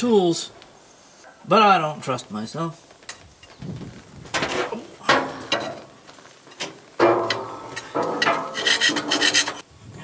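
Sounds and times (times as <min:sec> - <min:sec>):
file scraping on iron: 0:07.3 - 0:09.6.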